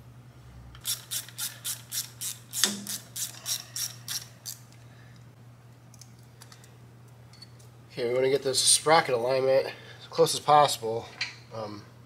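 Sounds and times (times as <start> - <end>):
hand ratchet clicking: 0.8 - 4.7.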